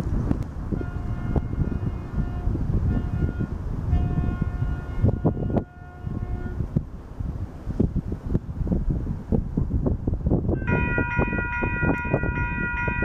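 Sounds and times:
train horn blasts: 0.7 - 6.7, 10.6 - 13.0.

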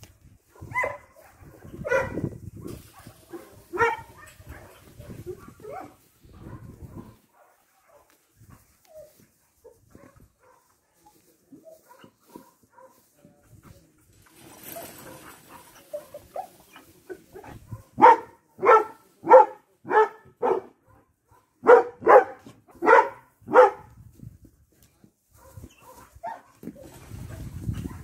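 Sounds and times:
dog barking: 0.5 - 2.3, 2.9 - 8.2, 8.9 - 11.0, 11.6 - 13.1, 17.7 - 23.9, 25.4 - 26.6.

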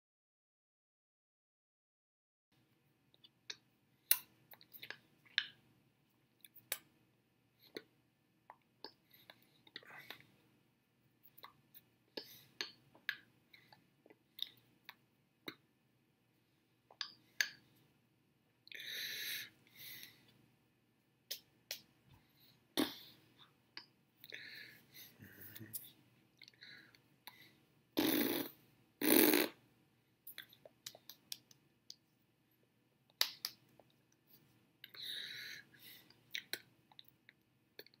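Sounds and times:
mouth and hand noises: 21.2 - 32.3.

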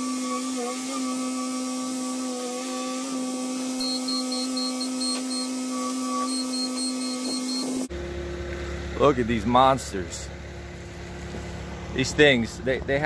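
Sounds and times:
track loader engine whine: 6.2 - 13.0.

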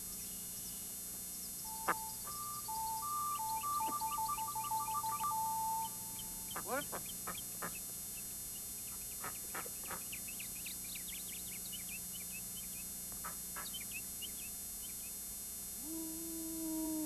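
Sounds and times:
small birds chirping: 0.0 - 15.3
held low pitched tone: 1.7 - 6.6
falling whistle-like calls: 1.7 - 6.9.

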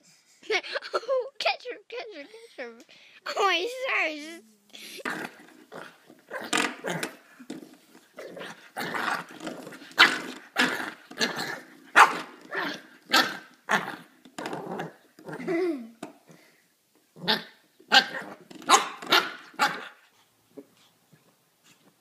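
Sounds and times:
puppy barking and growling: 5.0 - 7.3, 8.2 - 15.6, 17.2 - 20.0.

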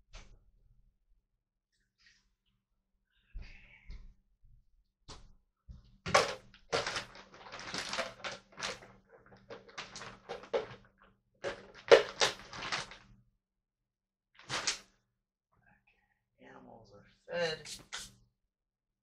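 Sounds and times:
rustling: 6.2 - 10.8.

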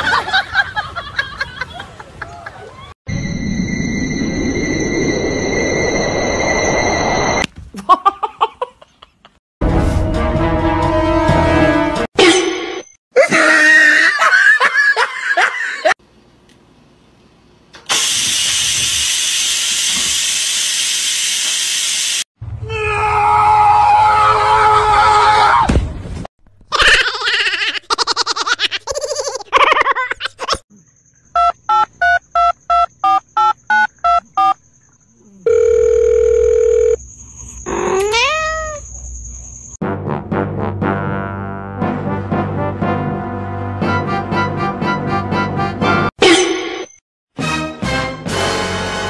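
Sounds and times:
people laughing: 0.0 - 2.9, 13.2 - 16.0
rice cooker steam hissing: 17.9 - 22.3.

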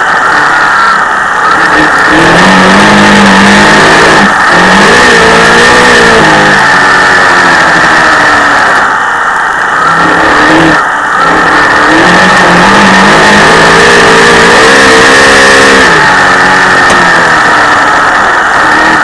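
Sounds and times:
race car engine revving: 0.0 - 19.0.

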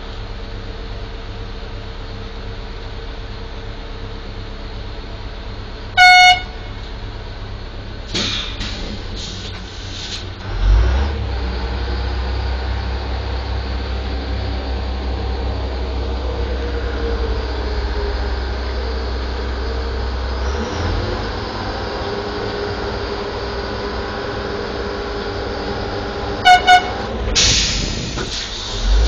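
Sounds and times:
deep heavy engine rumble: 0.0 - 29.0
horn blasts: 6.0 - 6.9, 26.4 - 27.2.

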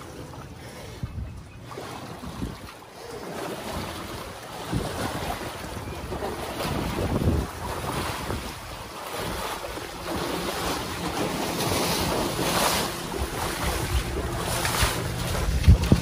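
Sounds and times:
water splashing and sloshing: 0.0 - 16.0
wind buffeting microphone: 0.0 - 16.0.

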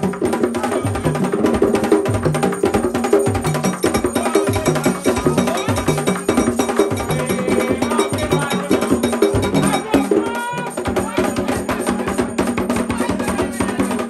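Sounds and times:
hand drums beaten fast: 0.0 - 14.0
voices singing: 3.6 - 14.0.

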